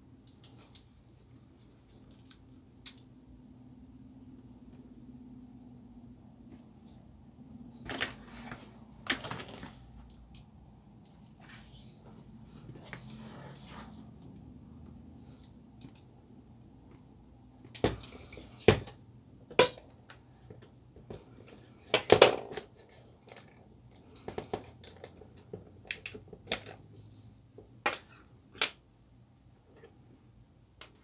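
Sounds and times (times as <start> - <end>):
plastic parts clicking and knocking: 15.4 - 26.9, 27.5 - 28.9.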